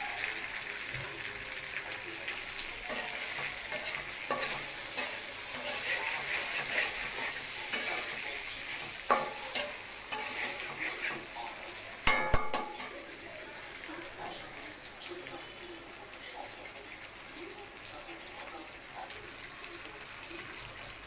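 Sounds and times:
meat sizzling in oil: 0.0s - 21.0s
metal spatula scraping pan: 2.9s - 13.0s.

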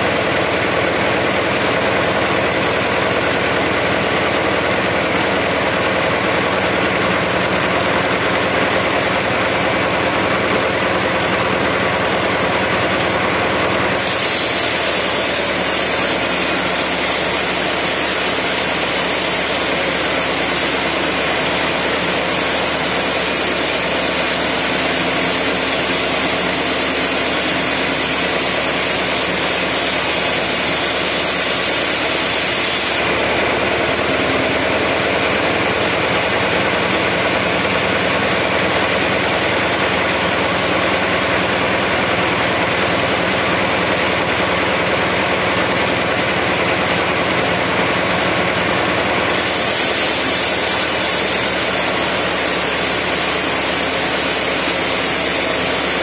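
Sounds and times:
band sawmill running: 0.0s - 56.0s
saw blade hissing in wood: 13.9s - 33.3s, 49.2s - 56.0s.

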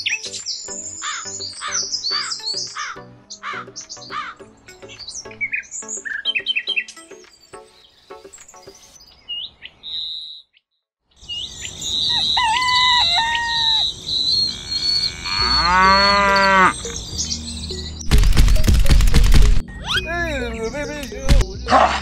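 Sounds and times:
birds chirping: 0.0s - 10.6s, 11.2s - 22.0s
cow mooing: 14.4s - 16.9s.

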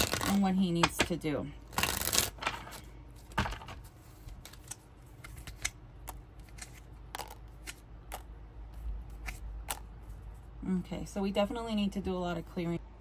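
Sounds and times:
playing cards clicking and snapping: 0.0s - 1.0s, 1.7s - 2.6s, 4.4s - 8.3s.

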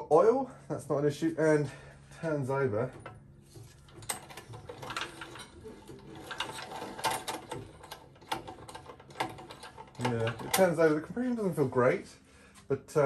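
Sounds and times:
engine turned over by hand: 2.9s - 10.9s.

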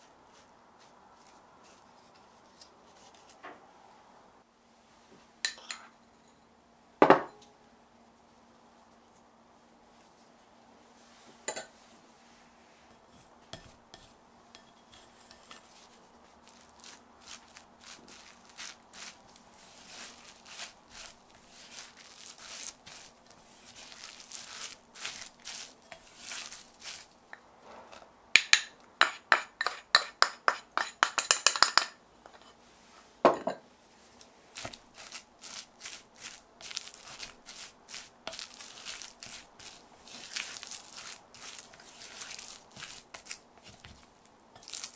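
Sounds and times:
spatula scraping glass bowl: 13.1s - 27.1s, 34.6s - 44.0s.

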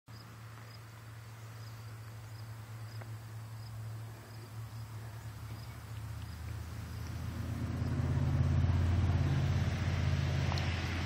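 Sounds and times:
cricket chirping: 0.1s - 8.0s.

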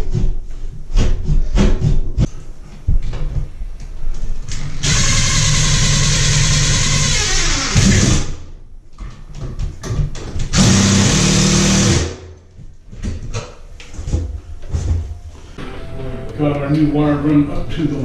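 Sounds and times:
power drill running: 4.8s - 8.3s, 10.5s - 12.2s.

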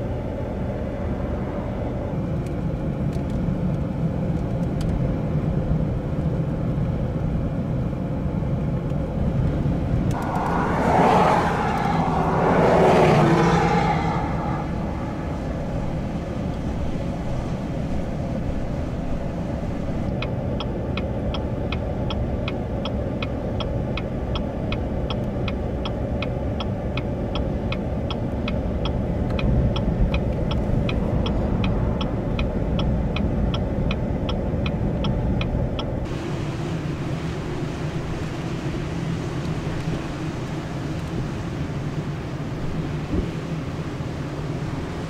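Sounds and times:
strong wind on microphone: 10.0s - 18.1s
regular ticking: 20.1s - 36.1s.

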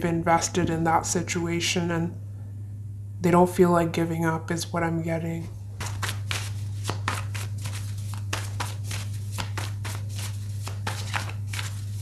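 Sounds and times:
steady low hum: 0.0s - 12.0s
cards being shuffled: 5.8s - 12.0s.

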